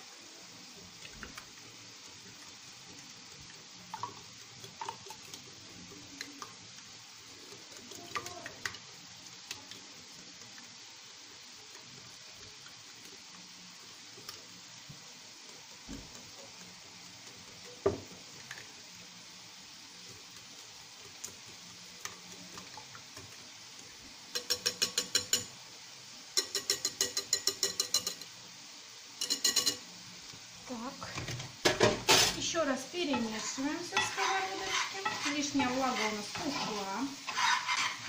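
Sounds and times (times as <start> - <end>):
vegetables sizzling in a pan: 0.0 - 38.0
eggs beaten by hand in bowl: 33.0 - 38.0.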